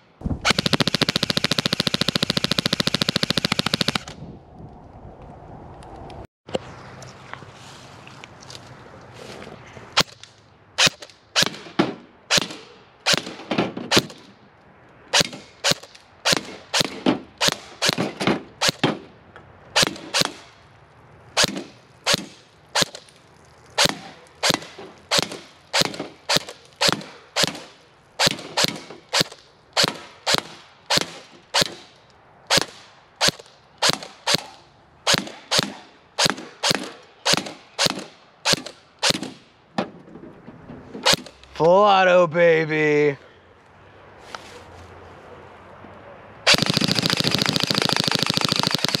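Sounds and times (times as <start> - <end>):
airsoft rifle firing single shots: 0.3 - 4.2, 10.8 - 14.3, 21.4 - 23.1, 23.8 - 31.9, 32.5 - 39.4, 46.5 - 49.0.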